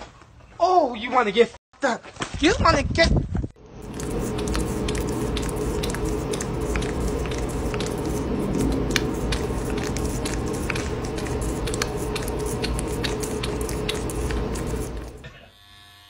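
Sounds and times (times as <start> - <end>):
low background hum: 3.6 - 15.4
cat licking and nibbling: 3.8 - 15.2.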